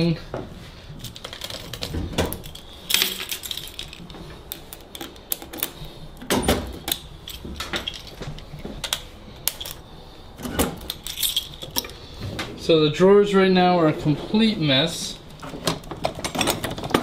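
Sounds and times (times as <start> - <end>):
tools clinking in metal drawer: 1.0 - 9.8, 10.4 - 12.0, 15.4 - 17.0.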